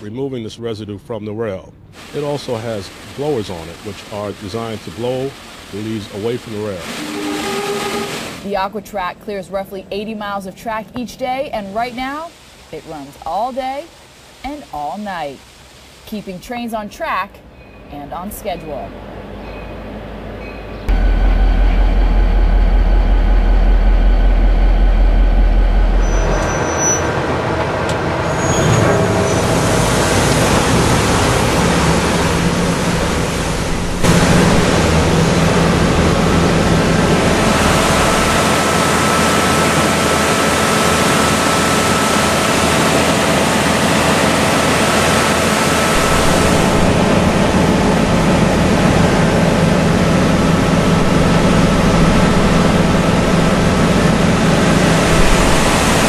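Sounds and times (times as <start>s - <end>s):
high-pressure water jets hissing: 2.0s - 8.6s, 11.4s - 16.9s, 29.2s - 56.0s
diesel locomotive engine rumble: 16.6s - 56.0s
faint steady whine: 20.0s - 26.5s.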